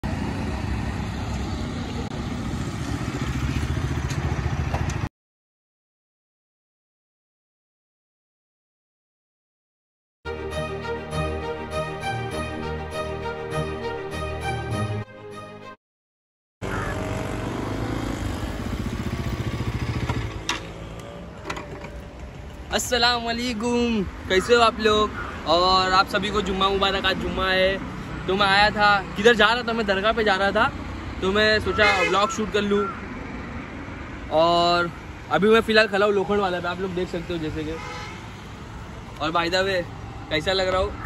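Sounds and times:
motorcycle engine rumbling: 16.6s - 26.0s.

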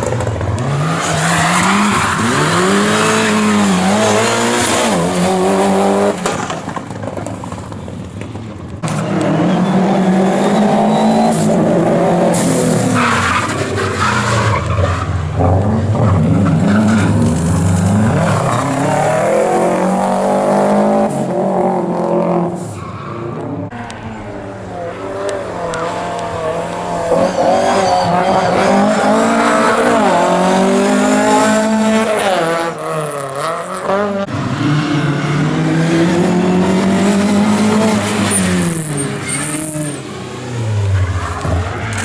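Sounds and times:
rally car engines revving: 0.0s - 7.9s, 8.7s - 42.0s
tyre squeal: 9.4s - 11.6s, 27.1s - 30.1s, 38.2s - 40.1s.

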